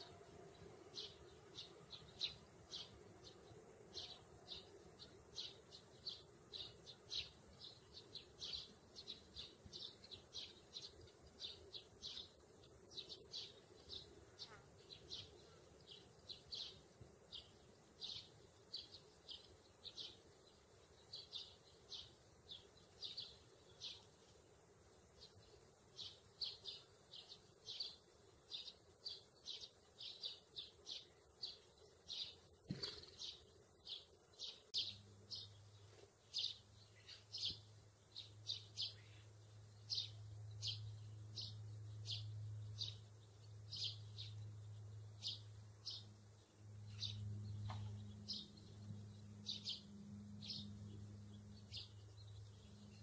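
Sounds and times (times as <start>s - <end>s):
sparrows chirping: 0.0s - 53.0s
low steady hum: 33.4s - 53.0s.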